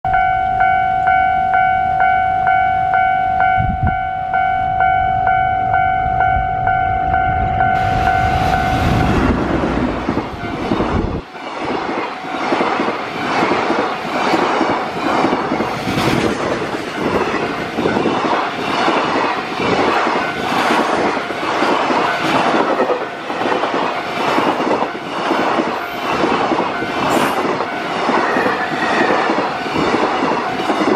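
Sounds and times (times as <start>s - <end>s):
steady pitched tone: 0.1s - 11.4s.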